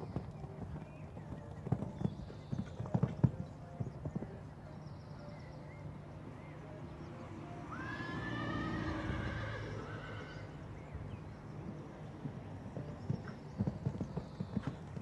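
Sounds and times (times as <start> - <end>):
horse hoofbeats on sand: 0.0 - 5.6, 11.6 - 15.0.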